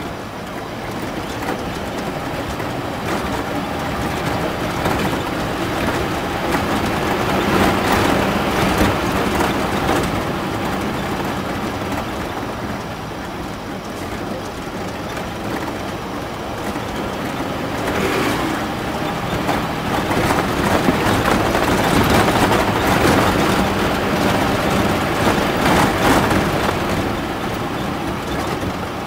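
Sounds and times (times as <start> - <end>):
road noise and rattling: 0.0 - 29.0
truck engine running: 0.0 - 29.0.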